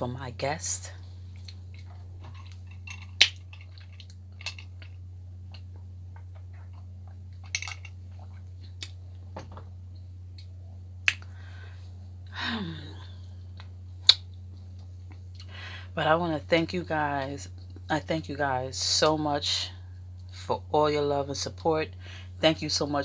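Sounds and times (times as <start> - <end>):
steady low hum: 0.0 - 23.0
mouth clicks and lip smacks: 10.4 - 11.3, 13.6 - 14.3.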